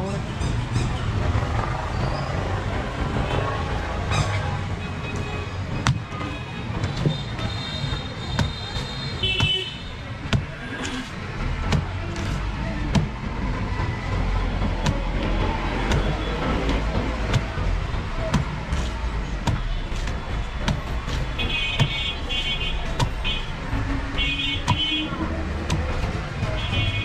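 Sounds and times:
street traffic rumble: 0.0 - 27.0
vehicle horn: 9.0 - 9.8
knife chopping on wooden block: 23.0 - 23.2.

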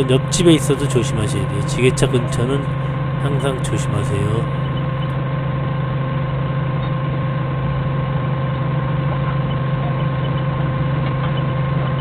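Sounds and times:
forklift engine idling: 0.0 - 5.3.

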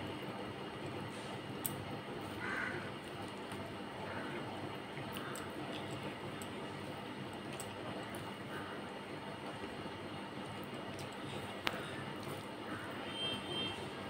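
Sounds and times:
fingers squishing rice and curry: 4.9 - 9.8.

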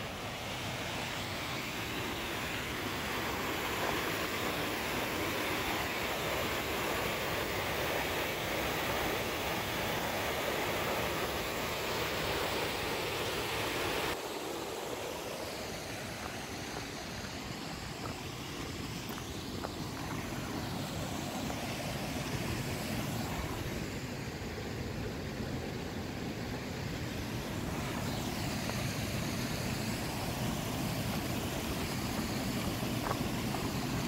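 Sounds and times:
stream cascade pouring into a pool: 0.0 - 34.0.

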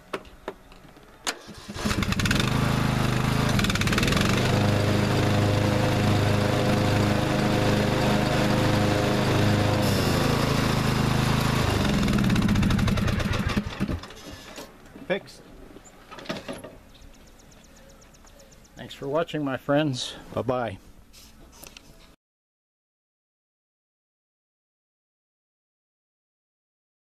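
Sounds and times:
riding mower engine running: 1.0 - 15.1
higher mechanical tone: 7.0 - 13.6.

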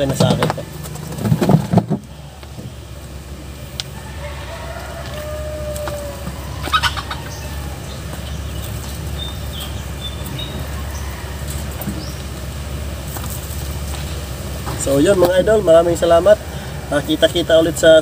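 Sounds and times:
faint high bird chirps: 6.4 - 12.3.

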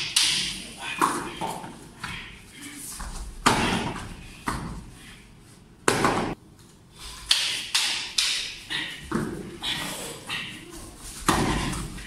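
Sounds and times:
fighting sticks clacking: 0.0 - 2.4, 7.0 - 12.0.

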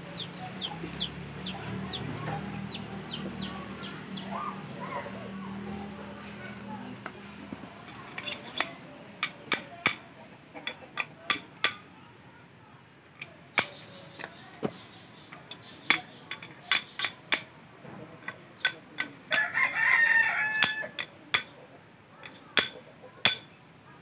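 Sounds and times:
hammer striking metal: 7.9 - 10.1, 11.0 - 11.8, 13.2 - 13.8, 15.9 - 17.5, 20.6 - 21.6, 22.2 - 23.6
rooster crowing: 19.3 - 21.0.

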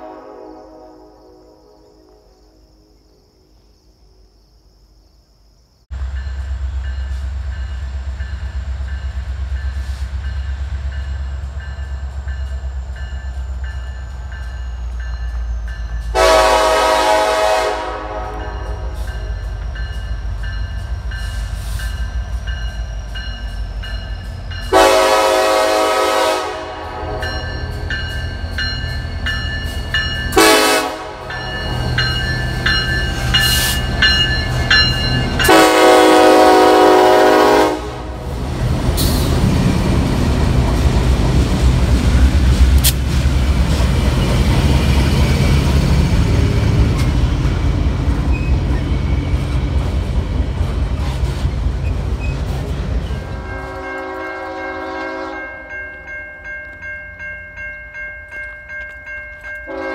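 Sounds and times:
train air horn blasts: 0.0 - 2.3, 16.0 - 19.5, 24.7 - 27.9, 30.3 - 32.0, 35.3 - 38.3, 53.0 - 55.7, 59.7 - 59.9
locomotive engine rumble: 5.9 - 55.2.

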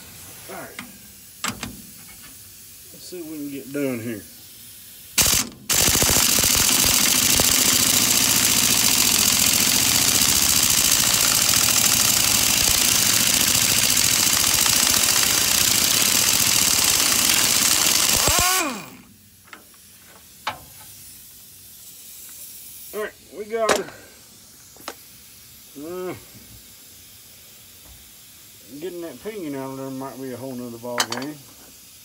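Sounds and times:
air impact wrench hammering: 0.7 - 2.3, 5.1 - 19.7.

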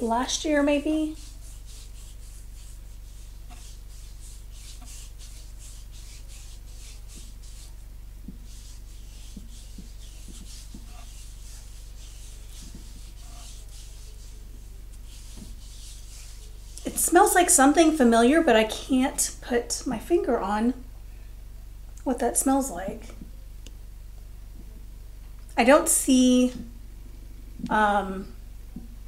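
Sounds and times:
hand rubbing cream into skin: 0.6 - 17.4.

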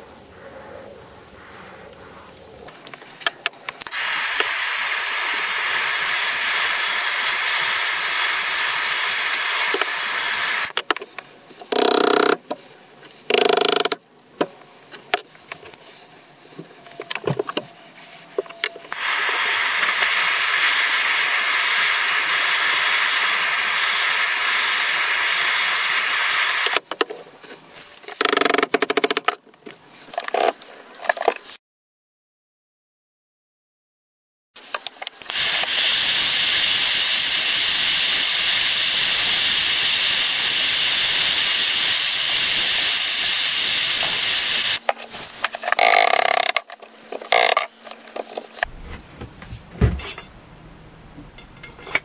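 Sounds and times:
gas blowtorch hissing: 3.8 - 10.7, 19.0 - 26.8, 35.3 - 44.8
knocks and rubbing on wooden handle: 48.7 - 50.0.

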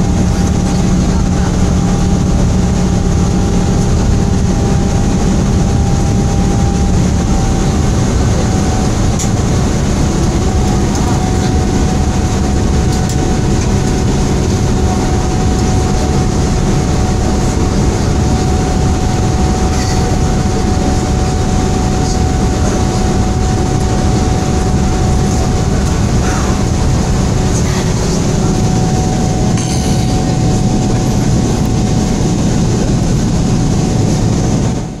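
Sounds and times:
faint whine: 0.0 - 35.0
jet engine roar in cabin: 0.0 - 35.0
rushing air: 22.5 - 35.0.

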